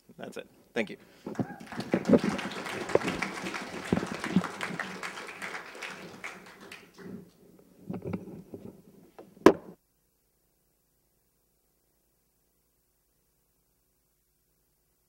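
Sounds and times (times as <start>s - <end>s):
audience applause: 1.3s - 7.4s.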